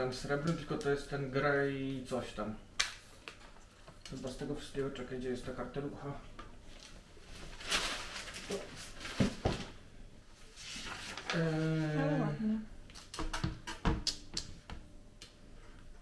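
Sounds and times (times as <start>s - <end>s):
paper rustling: 6.7s - 9.8s, 10.4s - 11.8s
person humming: 11.3s - 12.8s.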